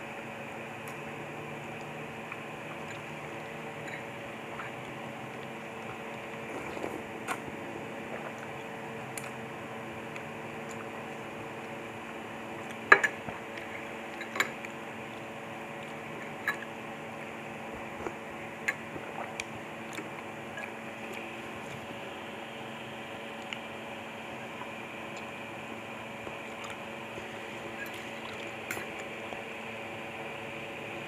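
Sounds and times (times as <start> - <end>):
steady low hum: 0.0 - 31.0
slurping noodles: 2.6 - 9.4.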